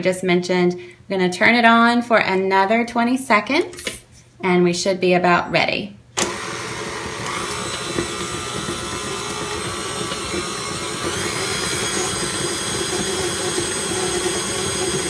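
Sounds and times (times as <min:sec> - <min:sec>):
stand mixer running: 0:06.2 - 0:15.0.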